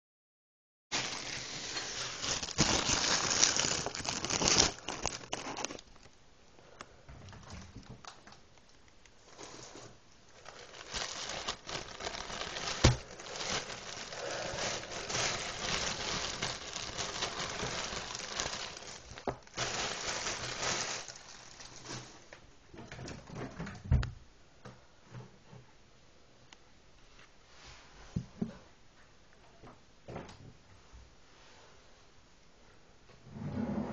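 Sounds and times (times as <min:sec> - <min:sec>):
plastic bag crinkling: 0:00.9 - 0:06.2, 0:07.5 - 0:22.4.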